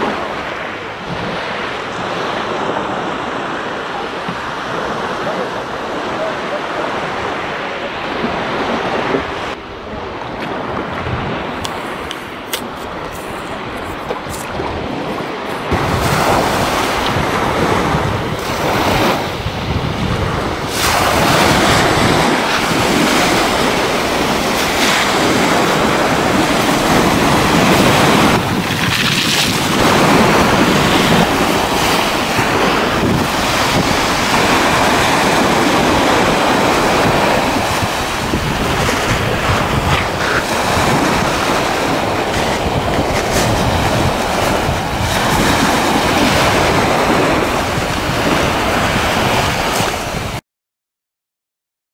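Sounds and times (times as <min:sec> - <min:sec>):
wind buffeting microphone: 0:00.0 - 0:50.4
waves washing over pebble beach: 0:12.2 - 0:50.3.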